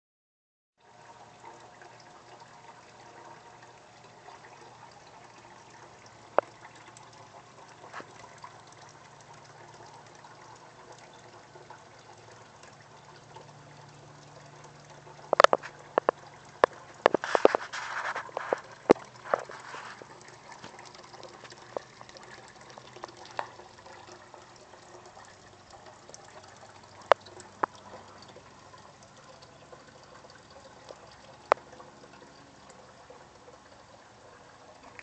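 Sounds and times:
low steady hum: 0.8 - 35.0
water pouring into plastic bucket: 14.8 - 33.8.

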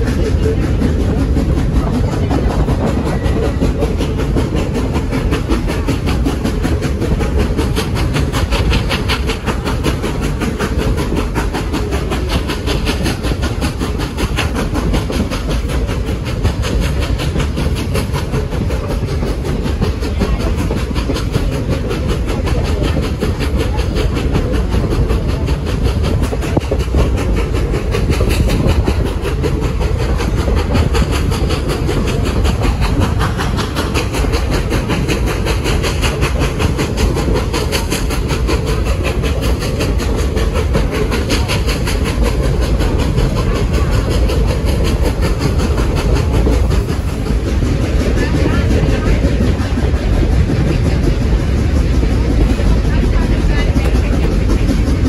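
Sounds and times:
train cars rumbling: 0.0 - 55.0
wheels clacking over rail joints: 0.0 - 55.0.

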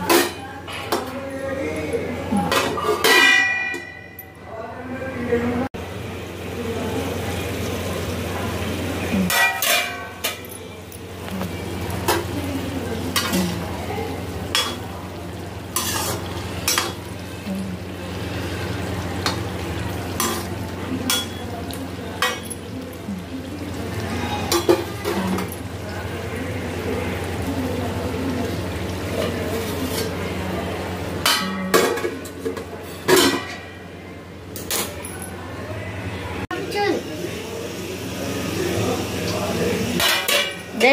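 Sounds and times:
metal plate clanking on pan: 2.4 - 4.3, 9.3 - 10.7, 15.8 - 17.1, 20.1 - 21.5, 24.4 - 25.6, 31.2 - 33.8, 40.0 - 40.9
metal clinking on pan: 2.5 - 4.4, 9.3 - 11.2, 15.8 - 17.1, 20.1 - 23.0, 24.4 - 25.7
vegetables sizzling in oil: 5.8 - 34.9, 35.9 - 40.9.

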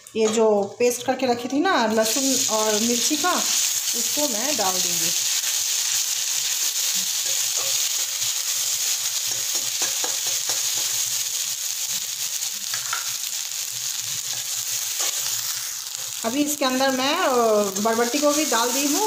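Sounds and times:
paste sizzling in hot oil: 2.0 - 19.0
metal spatula scraping a pan: 6.4 - 11.0.

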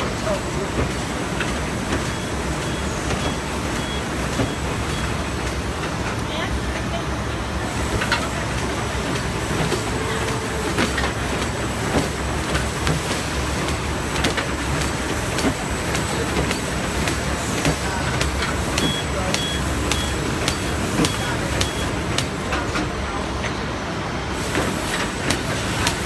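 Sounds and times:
machine mechanical clatter: 7.8 - 22.9
sharp machine clicks: 16.5 - 22.3.

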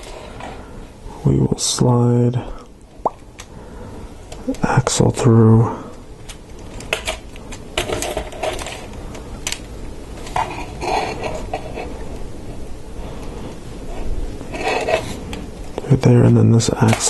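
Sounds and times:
plastic parts clicking and rattling: 7.8 - 9.6.

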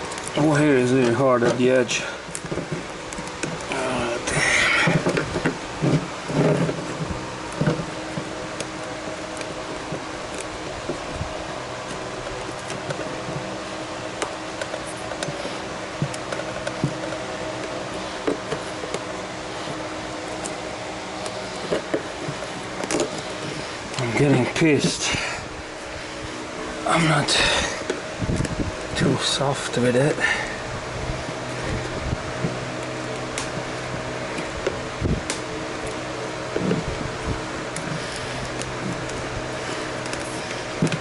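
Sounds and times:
fan-like hum: 0.0 - 41.0
sealant cracking: 0.0 - 41.0.

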